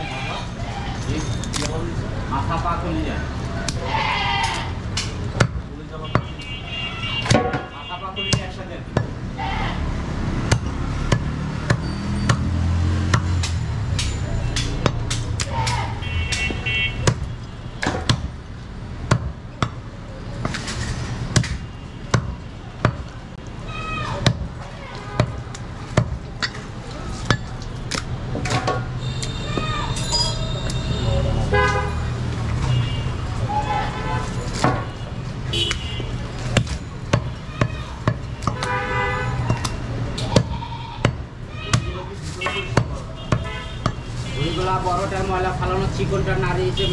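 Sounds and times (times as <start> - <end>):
voices: 0.0 - 46.9
cleaver chopping on wooden block: 10.5 - 18.3, 36.4 - 38.8, 39.4 - 44.0.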